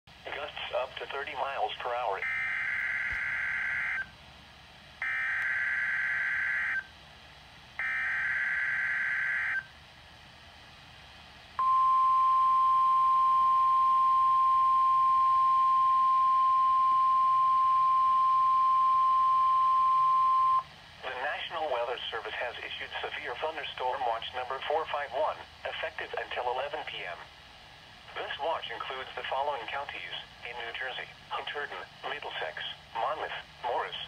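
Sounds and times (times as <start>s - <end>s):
steady warning alarm tone: 2.2s - 4.1s, 5.0s - 6.9s, 7.8s - 9.7s, 11.6s - 20.7s.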